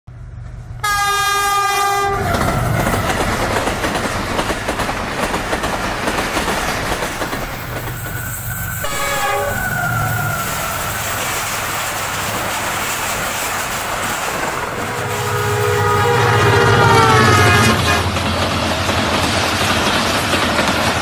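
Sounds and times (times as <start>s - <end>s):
passing train rumble and wheel clatter: 0.1s - 21.0s
locomotive horn: 0.8s - 2.5s, 8.7s - 11.2s, 14.6s - 18.2s.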